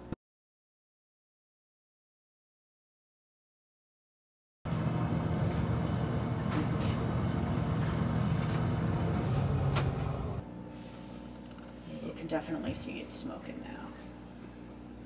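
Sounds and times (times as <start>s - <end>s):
low mechanical hum: 4.7s - 15.0s.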